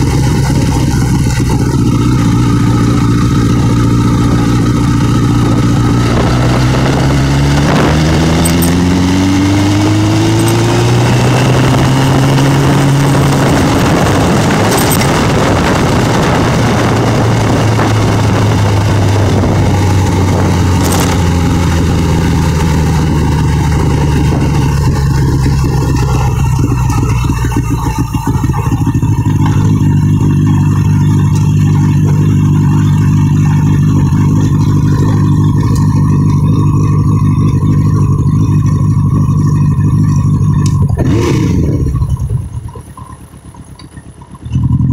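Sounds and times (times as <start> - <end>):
wind rushing over microphone: 0.0 - 27.2
motorcycle engine accelerating: 0.0 - 44.9.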